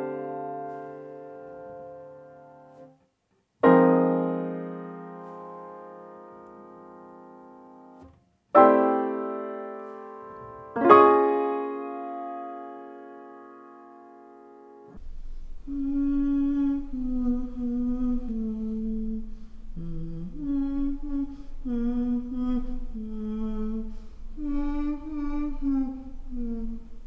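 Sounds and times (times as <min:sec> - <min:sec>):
low background hum: 0:14.9 - 0:27.0
woman humming a slow tune: 0:15.5 - 0:27.0.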